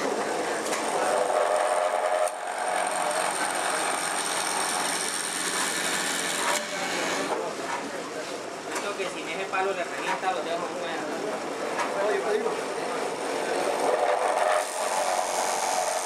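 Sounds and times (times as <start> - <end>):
power tool whining against wood: 0.9 - 7.4, 13.6 - 16.0.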